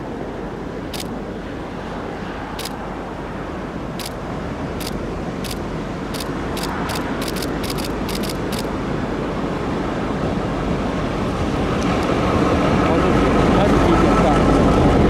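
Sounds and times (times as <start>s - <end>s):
passenger train rumbling past: 0.0s - 15.0s
sharp clicks: 4.8s - 5.6s, 6.2s - 8.7s.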